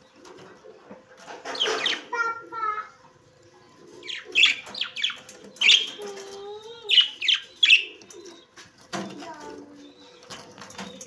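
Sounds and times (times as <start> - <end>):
parrots chirping: 1.4 - 2.2, 3.7 - 6.3, 6.9 - 8.5.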